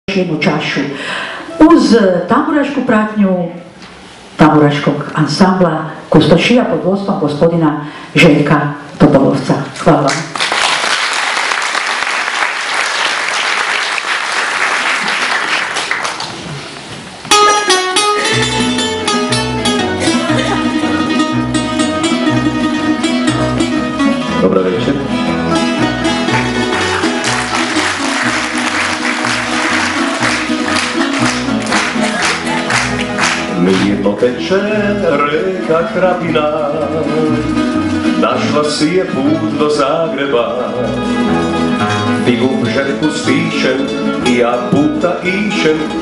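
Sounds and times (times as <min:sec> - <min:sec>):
applause: 0:10.0 - 0:16.6, 0:17.4 - 0:17.8, 0:26.0 - 0:34.0
string band playing: 0:17.3 - 0:46.0.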